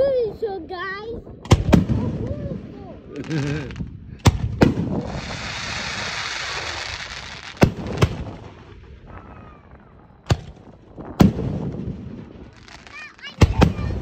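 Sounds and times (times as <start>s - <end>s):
firework fizzing hiss: 2.7s - 8.8s.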